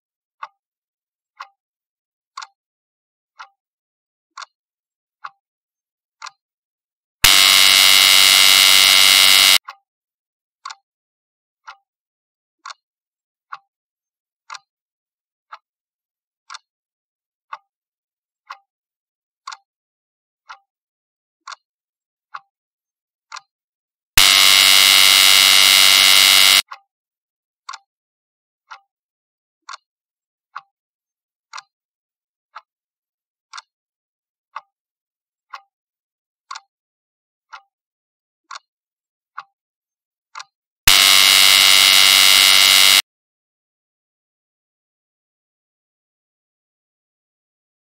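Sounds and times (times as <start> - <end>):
clock ticking: 7.2 - 9.6
loud harsh buzzer: 7.2 - 9.6, 24.2 - 26.6, 40.9 - 43.0.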